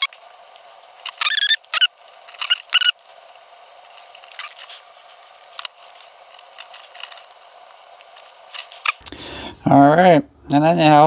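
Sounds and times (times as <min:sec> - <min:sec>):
short squeaks: 0:01.1 - 0:03.0.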